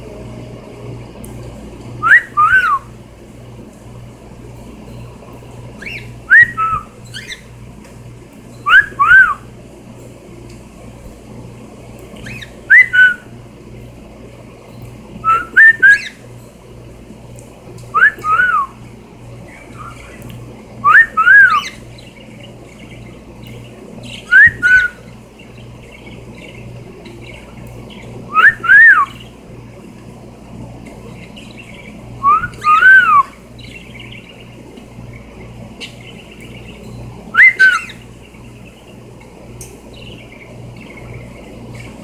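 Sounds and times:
cockatiel whistling: 2.0s - 2.9s, 5.8s - 7.5s, 8.6s - 9.5s, 12.2s - 13.3s, 15.2s - 16.2s, 17.9s - 18.8s, 20.8s - 21.8s, 24.1s - 25.1s, 28.3s - 29.2s, 32.2s - 33.8s, 37.3s - 38.0s.

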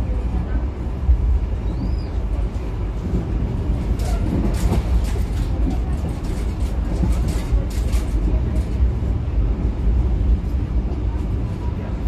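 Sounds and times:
train carriage rumble: 0.0s - 12.0s
light clicks and rattles: 4.0s - 8.9s.

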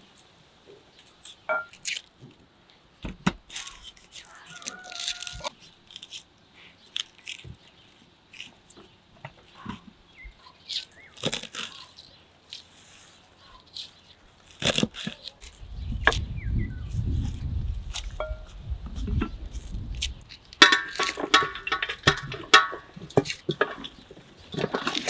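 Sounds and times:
knife cracking through cauliflower: 1.0s - 2.2s, 3.5s - 6.3s, 6.9s - 8.8s, 10.4s - 16.3s, 16.9s - 21.2s
parsley being torn and chopped: 1.0s - 2.3s, 3.4s - 6.3s, 6.9s - 9.8s, 10.4s - 12.7s, 13.5s - 16.3s, 17.2s - 25.0s.

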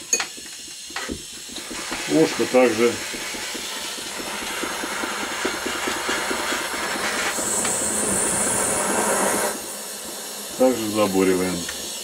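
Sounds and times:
gas torch flame hissing: 0.0s - 12.0s
sharper higher hiss: 0.0s - 12.0s.

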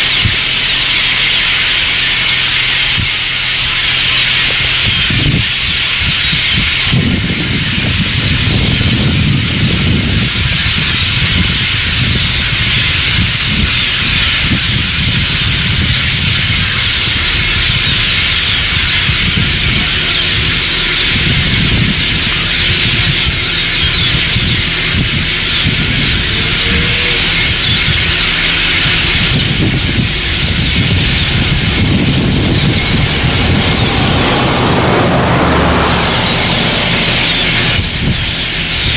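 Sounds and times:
flock of birds chattering: 0.0s - 38.9s
low rumble: 29.3s - 38.9s.

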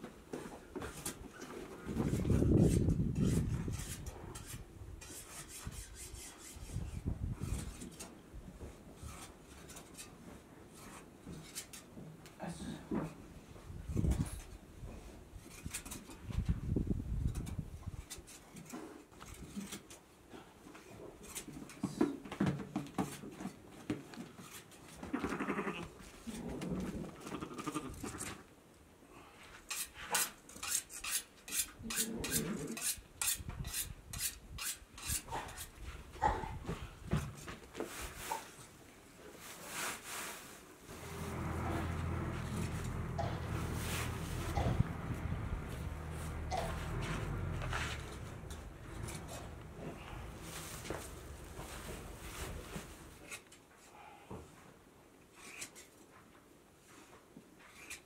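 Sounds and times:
hand shears scraping: 1.9s - 8.2s, 15.4s - 16.2s, 29.6s - 35.8s, 40.9s - 53.6s, 55.3s - 56.0s, 57.6s - 58.0s
low rumble: 40.9s - 52.7s.

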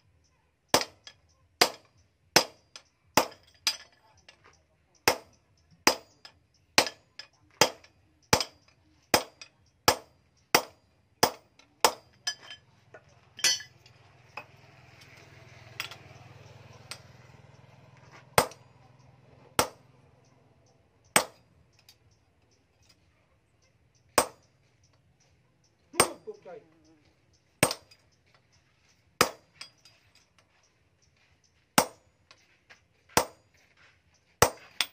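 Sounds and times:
hammer striking steel punch: 3.2s - 3.9s, 5.1s - 6.2s, 6.8s - 7.0s, 7.6s - 12.6s, 18.4s - 18.7s, 19.6s - 19.9s, 21.2s - 21.5s, 24.2s - 24.4s, 27.6s - 28.0s, 29.2s - 29.7s, 31.8s - 32.0s, 33.2s - 33.4s, 34.4s - 34.9s.

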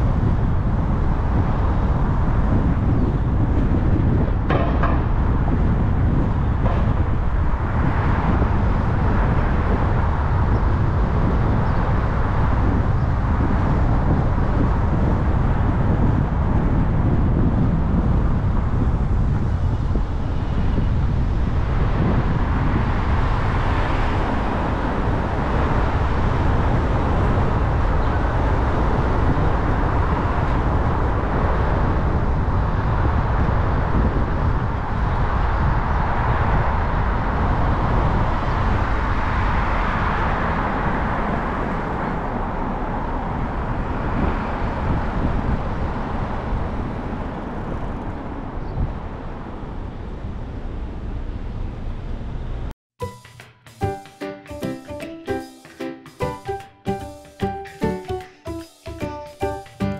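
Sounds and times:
car road noise rumble: 0.0s - 52.7s
tyre hiss: 53.0s - 59.9s.

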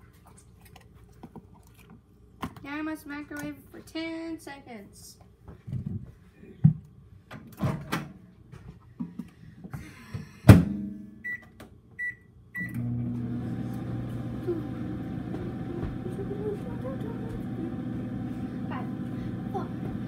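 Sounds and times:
knocks and loud clunk: 10.5s - 10.9s
microwave oven humming: 10.7s - 20.0s.

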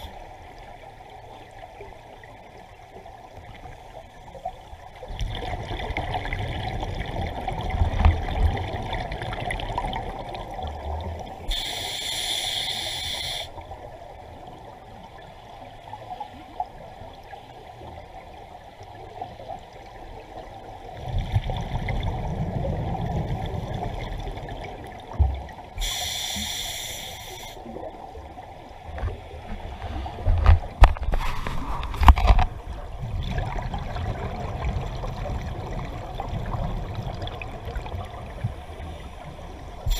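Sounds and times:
exhaled bubbles gurgling: 5.0s - 11.9s, 19.2s - 26.6s, 27.6s - 39.9s
regulator hisses: 11.5s - 13.5s, 25.8s - 27.6s.

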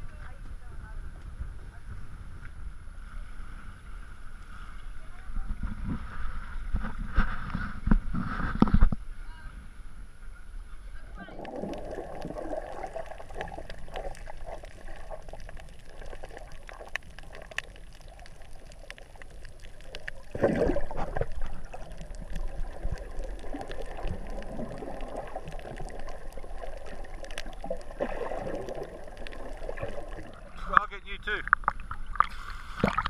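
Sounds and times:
underwater gurgling and sloshing: 0.0s - 33.0s
rush of water: 11.0s - 33.0s.

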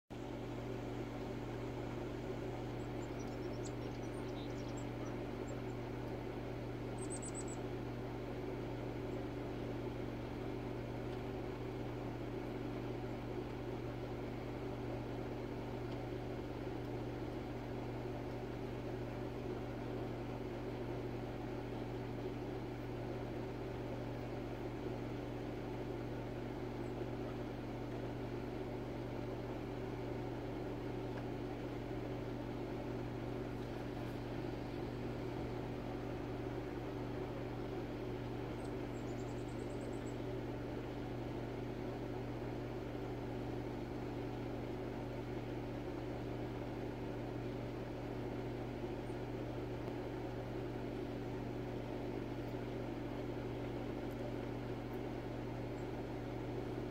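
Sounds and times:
low machine hum: 0.1s - 56.9s.

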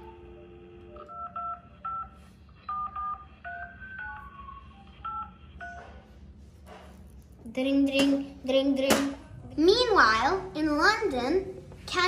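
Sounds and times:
telephone dial tone: 0.0s - 5.3s.

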